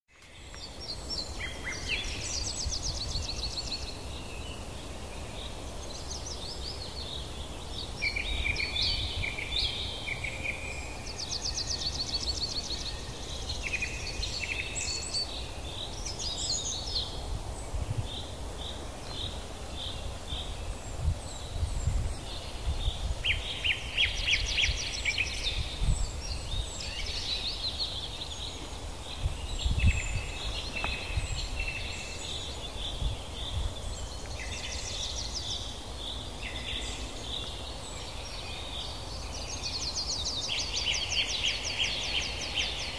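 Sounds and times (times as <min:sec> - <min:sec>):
birds chirping and trilling: 0:00.3 - 0:42.9.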